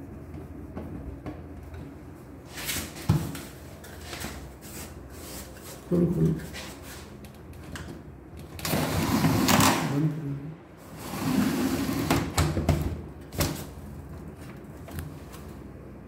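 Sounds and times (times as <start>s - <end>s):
folding door sliding on track: 8.5s - 10.0s, 10.8s - 12.6s.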